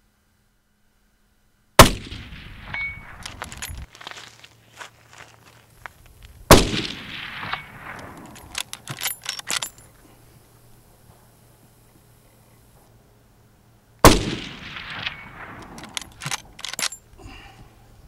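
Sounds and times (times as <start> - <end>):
rifle shot with echo: 1.8 - 3.7, 6.5 - 8.5, 14.0 - 16.1
rifle lever metallic clicks: 7.4 - 9.9, 14.9 - 17.0.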